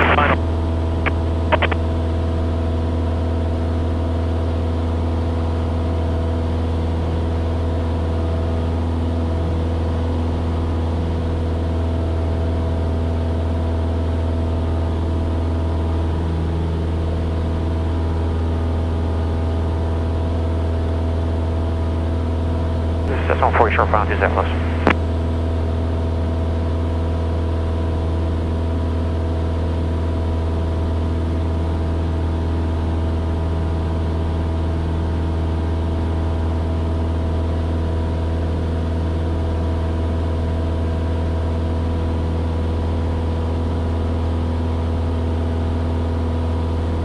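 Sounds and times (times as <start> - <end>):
light aircraft engine droning: 0.0 - 2.7, 23.0 - 27.6.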